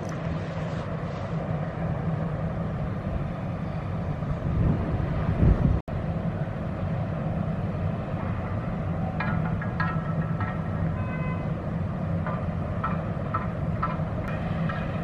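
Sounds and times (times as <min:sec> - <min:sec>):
wind and water hissing: 0:00.0 - 0:09.1
ship engines droning: 0:00.0 - 0:15.0.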